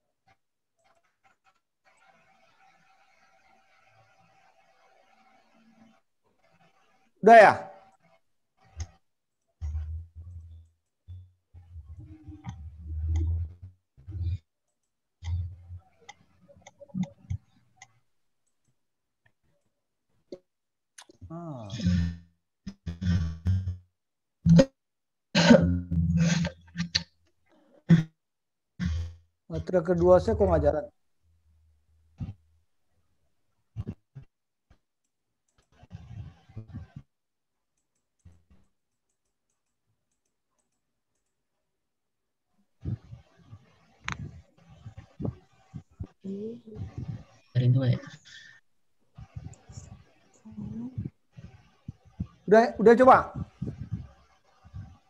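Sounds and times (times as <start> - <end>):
computer mouse clicks: 37.8 - 41.4.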